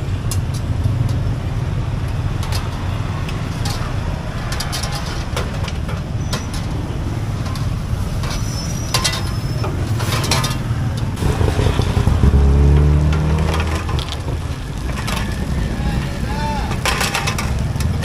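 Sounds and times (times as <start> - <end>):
metal pots and trays clinking: 2.4 - 11.1, 16.7 - 18.0.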